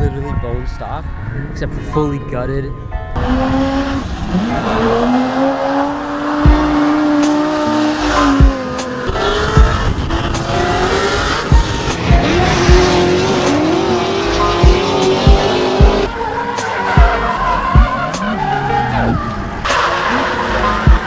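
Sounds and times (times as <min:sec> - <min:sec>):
car engines revving: 0:03.1 - 0:21.0
sharp low thumps: 0:06.4 - 0:07.4, 0:08.2 - 0:08.6, 0:09.3 - 0:16.1.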